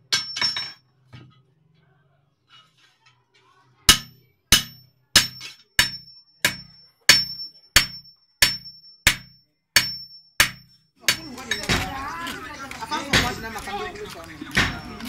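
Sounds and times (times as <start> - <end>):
hammer striking metal on anvil: 3.9 - 12.1.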